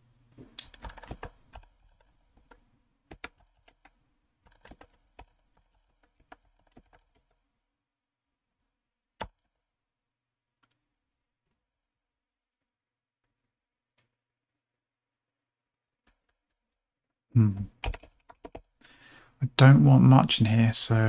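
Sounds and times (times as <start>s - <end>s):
typing on computer keyboard: 0.6s - 7.4s, 17.7s - 18.7s.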